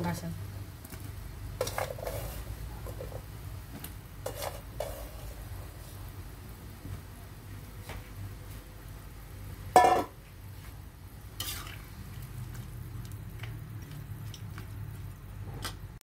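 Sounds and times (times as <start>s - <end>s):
water simmering: 0.0s - 16.0s
metal spatula scraping wok: 1.6s - 3.2s, 4.2s - 5.6s, 11.3s - 12.3s.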